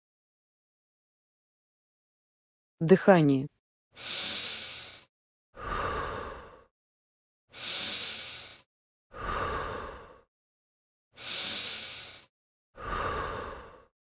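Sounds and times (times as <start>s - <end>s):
man breathing through mouth: 4.0s - 6.7s, 7.5s - 10.3s, 11.2s - 13.9s.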